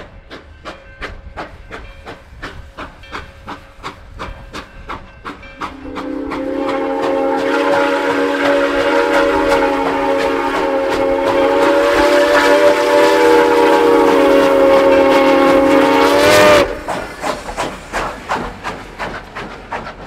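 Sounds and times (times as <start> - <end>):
passing train clicks and knocks: 0.0 - 20.0
steam locomotive whistle: 5.6 - 17.0.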